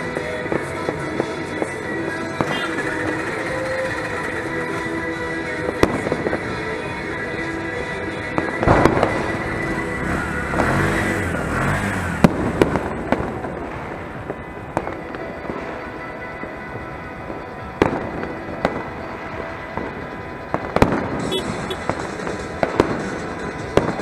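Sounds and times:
background din: 0.0s - 15.7s, 17.2s - 24.0s
firecracker bangs: 8.4s - 9.7s, 12.0s - 15.8s, 20.6s - 24.0s.

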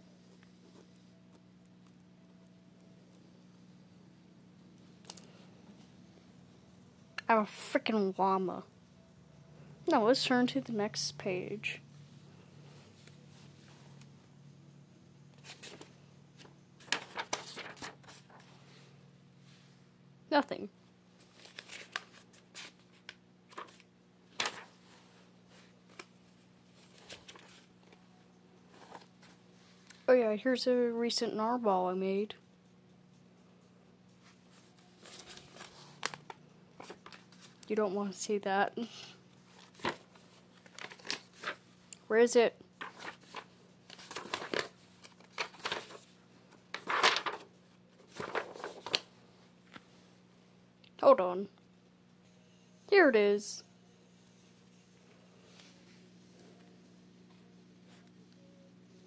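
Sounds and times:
notebook pages turning: 15.4s - 18.5s, 21.2s - 24.7s, 25.9s - 26.1s, 26.8s - 28.0s, 28.7s - 29.4s, 35.0s - 37.6s, 39.5s - 41.6s, 42.8s - 46.1s, 46.7s - 49.1s
paper rustling: 15.4s - 18.5s, 21.2s - 28.0s, 28.7s - 30.0s, 34.2s - 37.7s, 39.5s - 41.6s, 42.8s - 49.1s.

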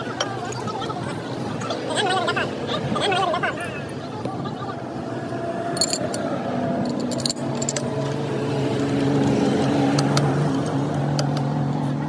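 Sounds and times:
engine hum: 0.0s - 12.0s
metallic clinks of wrench: 5.8s - 6.2s, 6.8s - 8.1s.

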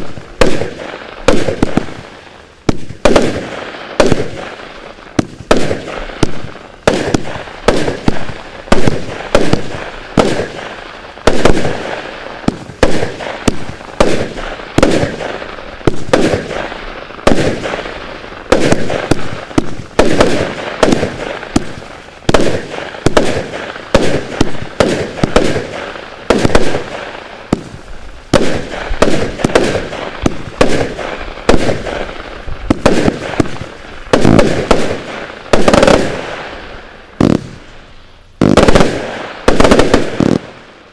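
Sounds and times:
firework launches and bursts: 0.0s - 40.9s.

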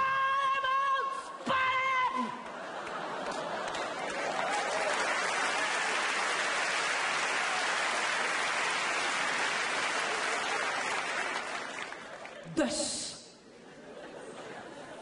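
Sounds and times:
audience applauding: 2.4s - 12.5s.

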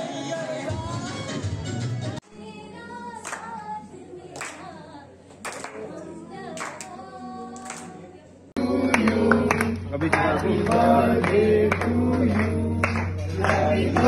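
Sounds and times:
music: 0.0s - 4.8s, 8.6s - 14.0s
people clapping in time: 3.2s - 3.7s, 4.4s - 4.7s, 5.3s - 6.0s, 6.6s - 7.0s, 7.6s - 8.0s, 8.8s - 14.0s
person singing unaccompanied: 5.8s - 14.0s.

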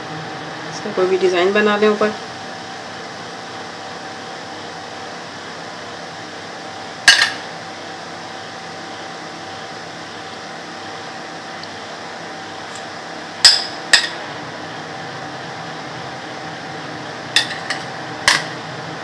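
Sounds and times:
room fan hum: 0.0s - 19.0s.

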